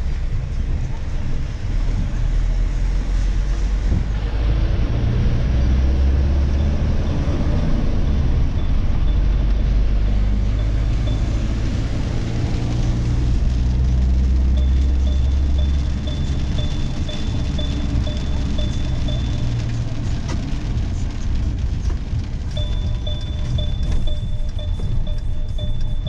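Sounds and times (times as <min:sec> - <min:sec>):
low engine drone: 0:00.0 - 0:26.0.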